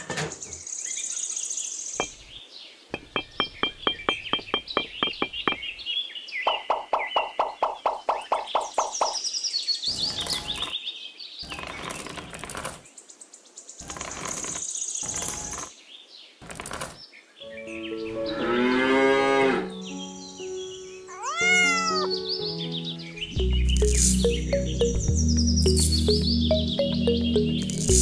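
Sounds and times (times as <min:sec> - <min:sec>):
birds chirping: 0:00.0 - 0:28.0
background music: 0:17.4 - 0:28.0
cow mooing: 0:18.1 - 0:19.7.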